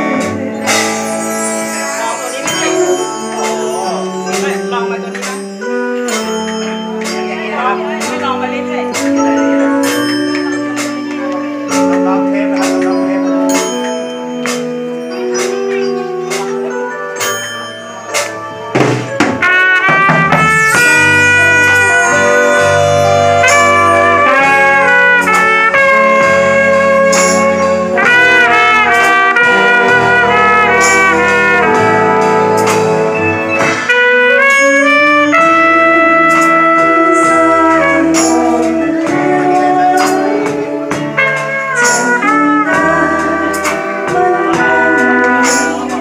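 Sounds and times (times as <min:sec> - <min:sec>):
alto saxophone melody: 0:00.0 - 0:16.9, 0:18.4 - 0:46.0
band backing with bass: 0:00.0 - 0:46.0
percussion hits: 0:00.0 - 0:46.0.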